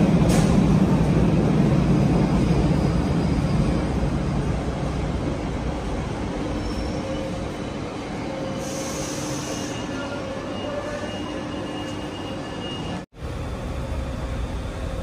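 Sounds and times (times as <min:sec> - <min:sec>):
train rumble: 0:00.0 - 0:10.4.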